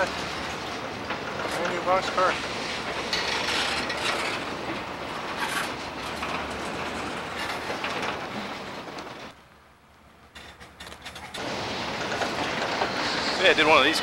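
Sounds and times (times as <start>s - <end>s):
train wheels rolling on track: 0.0s - 14.0s.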